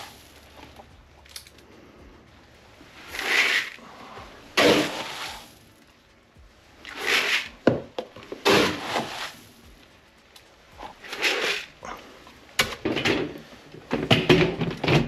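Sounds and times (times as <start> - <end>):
pellets pouring into plastic bucket: 3.0 - 3.9, 4.6 - 5.6, 6.9 - 7.6, 8.4 - 9.5, 11.0 - 11.8.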